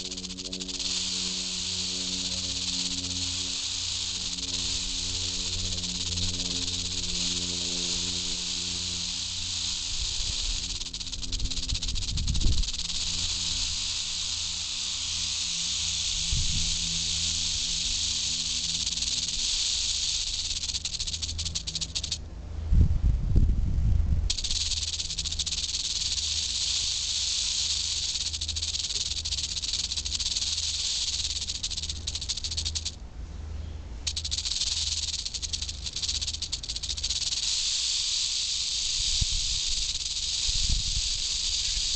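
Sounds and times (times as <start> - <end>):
rattlesnake tail rattle buzzing: 0.0 - 22.3, 24.3 - 33.0, 34.0 - 41.9.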